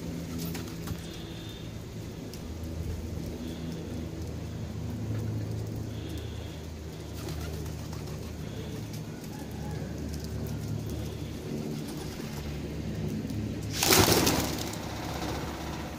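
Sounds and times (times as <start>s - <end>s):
wings flapping: 0.0s - 15.9s
pigeons cooing: 3.3s - 15.9s.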